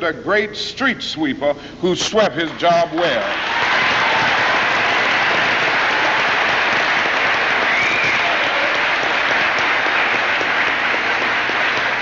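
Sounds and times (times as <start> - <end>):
audience applauding: 3.0 - 12.0.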